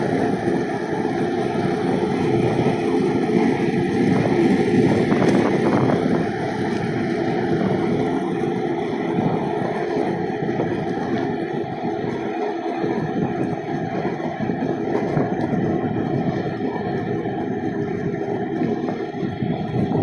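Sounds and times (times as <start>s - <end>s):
wheels rolling on asphalt: 0.0s - 20.0s
wind on microphone: 0.0s - 20.0s.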